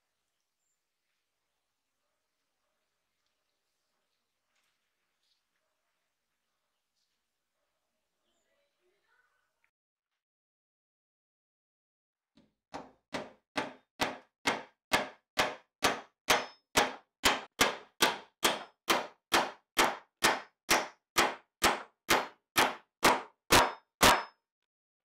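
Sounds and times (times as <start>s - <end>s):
hammer striking nail into wood: 12.7s - 24.4s.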